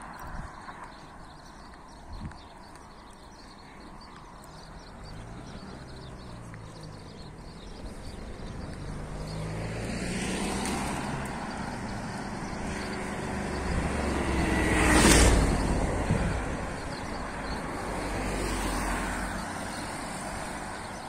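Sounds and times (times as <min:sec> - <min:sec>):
motorcycle engine passing: 0:07.6 - 0:16.4.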